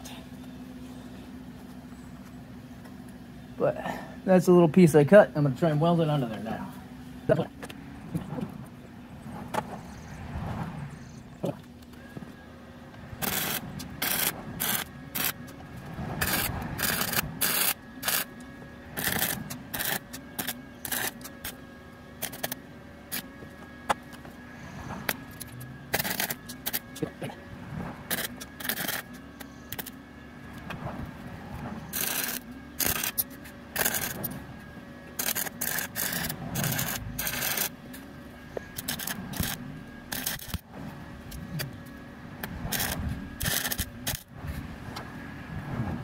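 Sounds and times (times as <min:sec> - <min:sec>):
steady hum: 0:00.0 - 0:46.0
wire brush scrubbing metal: 0:13.2 - 0:15.5, 0:16.2 - 0:18.3, 0:19.0 - 0:21.6, 0:22.2 - 0:23.3, 0:25.1 - 0:27.2, 0:28.1 - 0:29.9, 0:31.9 - 0:34.4, 0:35.2 - 0:37.7, 0:38.7 - 0:40.6, 0:42.7 - 0:44.2
welder arc crackling: 0:13.2 - 0:15.6, 0:16.2 - 0:21.6, 0:22.2 - 0:23.3, 0:25.3 - 0:27.1, 0:28.1 - 0:30.0, 0:31.9 - 0:34.3, 0:35.2 - 0:37.8, 0:38.8 - 0:40.7, 0:42.4 - 0:44.3.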